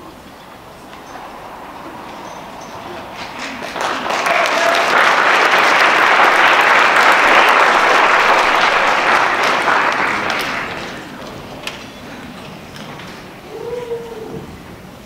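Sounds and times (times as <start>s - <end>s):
audience applause: 0.0s - 11.8s.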